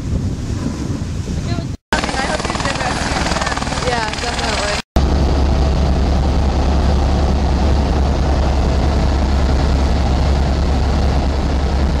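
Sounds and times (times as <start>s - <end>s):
helicopter engine and rotor drone: 1.9s - 12.0s.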